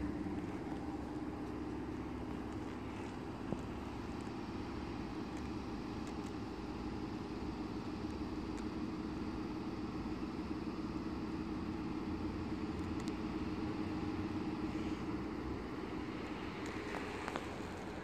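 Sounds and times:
electric train hum and rumble: 0.0s - 18.0s.

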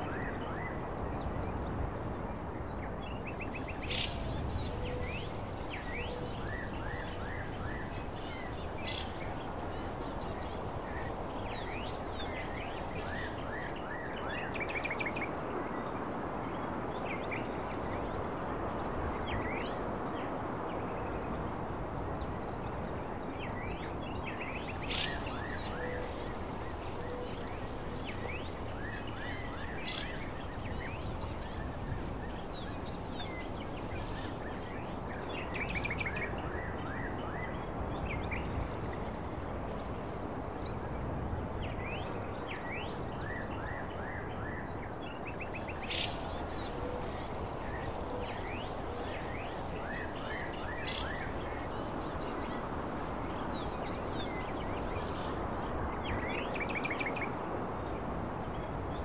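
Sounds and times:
high-pitched insect trill: 3.4s - 14.8s, 24.4s - 35.9s, 45.3s - 56.8s
birds chirping: 24.6s - 35.1s, 45.6s - 56.0s.

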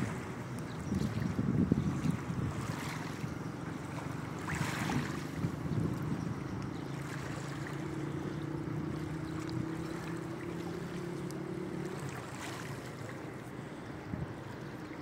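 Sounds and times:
wind on microphone: 0.0s - 11.0s
motorboat engine hum: 0.0s - 15.0s
small waves lapping: 0.0s - 15.0s.

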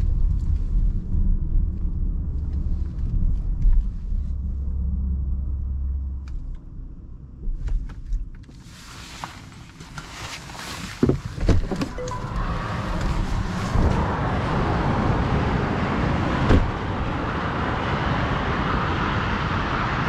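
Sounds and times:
car road and wind noise: 0.0s - 20.0s
thump: 16.5s - 16.8s.

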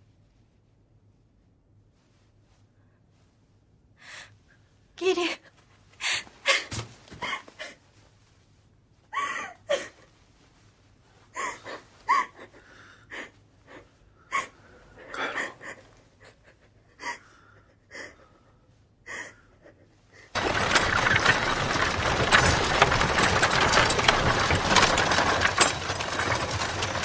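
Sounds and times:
person gasping and breathing heavily: 11.4s - 20.4s.

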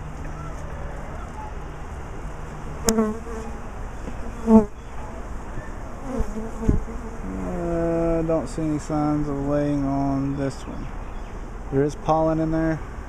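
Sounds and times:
honeybees buzzing: 0.0s - 11.9s
louder bee buzzes: 2.8s - 4.8s, 5.9s - 7.8s.

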